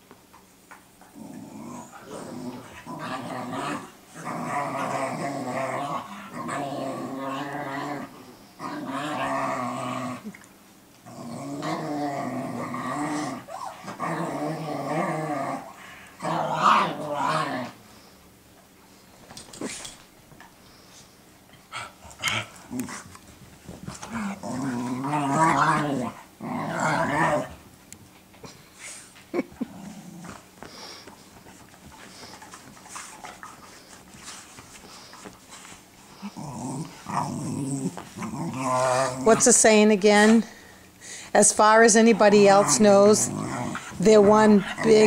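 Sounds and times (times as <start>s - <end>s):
puppies growling: 1.0s - 18.1s, 21.6s - 27.7s, 29.3s - 45.0s.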